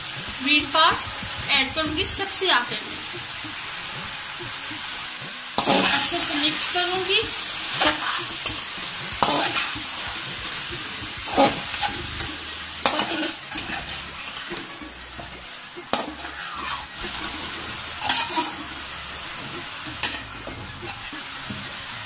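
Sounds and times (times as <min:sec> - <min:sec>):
fish sizzling in oil: 0:00.0 - 0:22.0
metal spatula scraping pan: 0:03.1 - 0:21.8.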